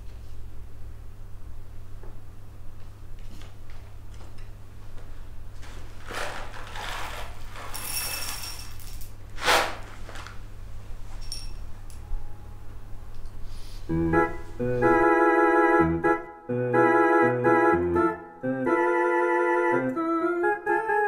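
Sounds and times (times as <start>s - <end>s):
steady low hum: 0.0s - 20.7s
foil bag crinkling: 5.6s - 10.4s
coffee beans rattling onto dish: 7.6s - 9.2s.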